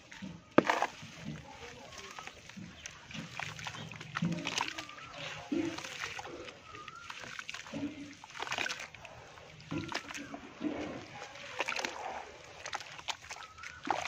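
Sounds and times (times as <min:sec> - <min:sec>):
hands squelching wet mud: 0:00.0 - 0:14.0.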